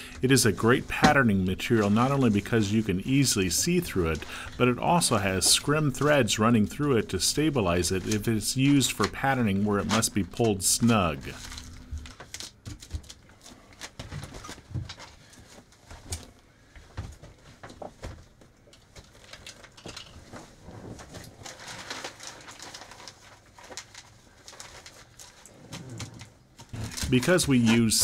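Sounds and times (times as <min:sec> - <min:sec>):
plastic film crinkling: 0:00.0 - 0:28.0
small crackles and clicks: 0:17.6 - 0:27.7.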